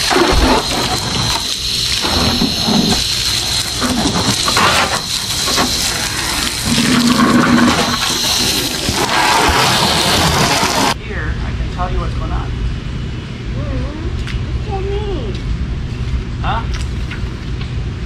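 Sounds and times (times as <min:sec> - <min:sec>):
hose water spraying onto car: 0:00.0 - 0:11.0.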